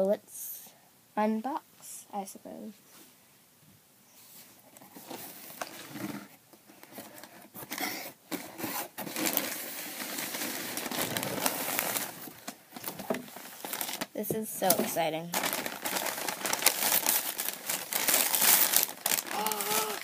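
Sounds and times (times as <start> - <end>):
plastic packaging crinkling: 8.3 - 20.0.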